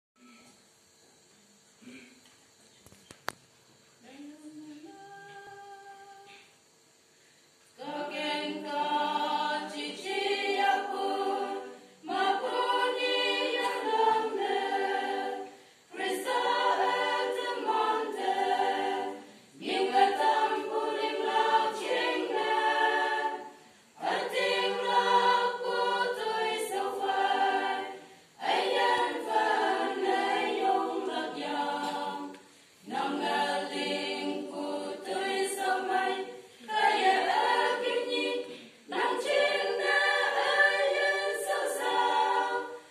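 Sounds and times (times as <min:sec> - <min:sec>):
breaths: 0:06.3 - 0:07.6, 0:15.5 - 0:15.9, 0:23.5 - 0:24.0, 0:32.4 - 0:32.8, 0:38.4 - 0:38.8
women's choir singing: 0:07.8 - 0:42.9.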